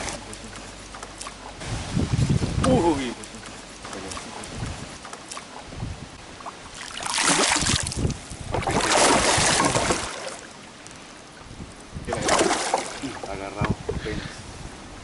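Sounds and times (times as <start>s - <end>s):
fish splashing in water: 6.3s - 11.4s, 12.1s - 13.3s.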